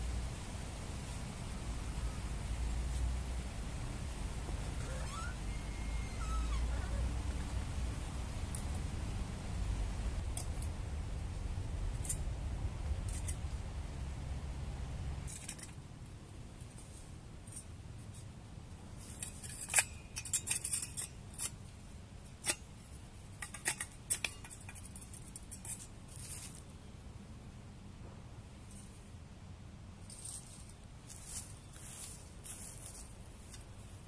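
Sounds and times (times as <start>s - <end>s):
metal parts clinking and scraping: 19.0s - 21.6s.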